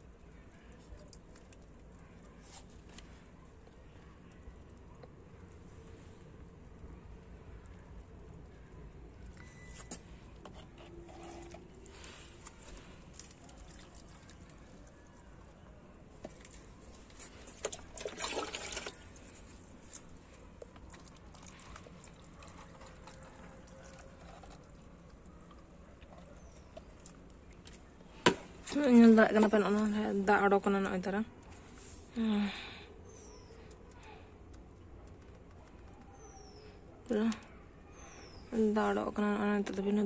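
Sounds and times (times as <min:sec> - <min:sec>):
water pouring onto soil: 0:16.4 - 0:20.0.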